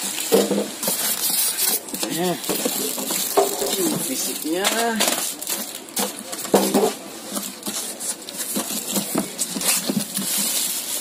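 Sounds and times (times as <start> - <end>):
plastic wrapping crinkling: 0.0 - 11.0
cardboard box rustling and knocking: 6.0 - 11.0.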